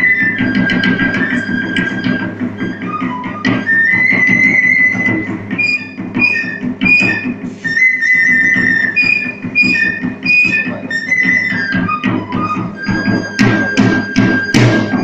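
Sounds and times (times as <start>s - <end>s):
whistling dance music melody: 0.0s - 15.0s.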